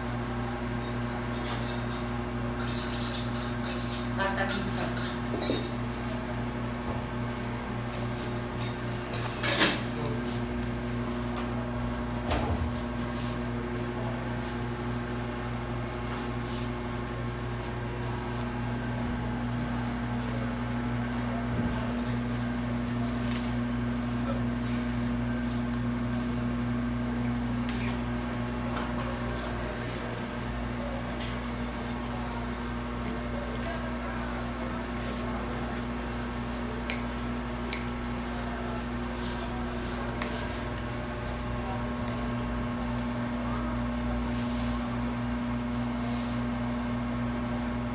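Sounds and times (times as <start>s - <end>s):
steady electric hum: 0.0s - 47.9s.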